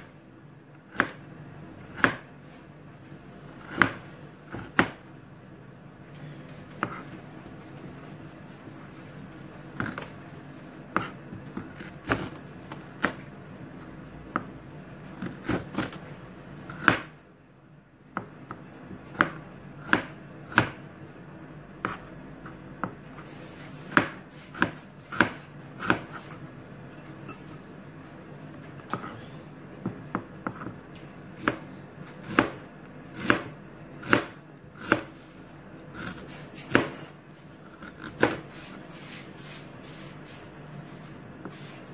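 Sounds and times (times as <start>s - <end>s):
knife slicing on plastic board: 9.6s - 10.2s, 23.8s - 26.3s.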